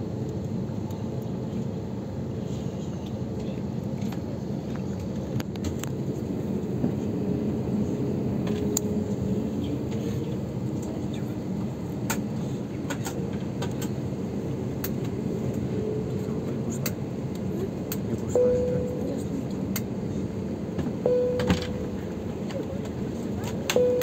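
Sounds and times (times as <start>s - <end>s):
aircraft engines rumbling: 0.0s - 24.0s
faint whine: 15.4s - 24.0s.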